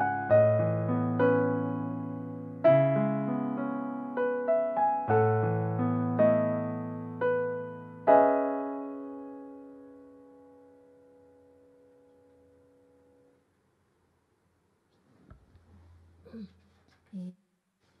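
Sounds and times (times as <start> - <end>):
piano notes and ringing chord: 0.0 - 13.3.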